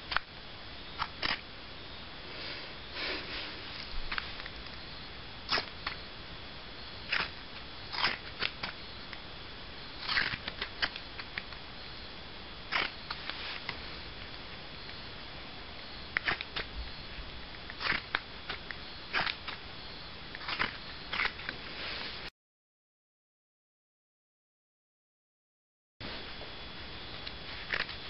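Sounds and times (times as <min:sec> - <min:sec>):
scissors snipping fabric: 0:07.9 - 0:08.8, 0:16.2 - 0:16.7.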